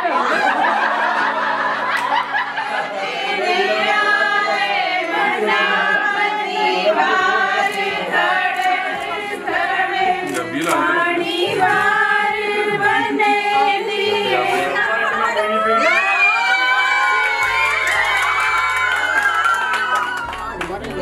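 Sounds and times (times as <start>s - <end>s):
women singing together: 0.0s - 18.9s.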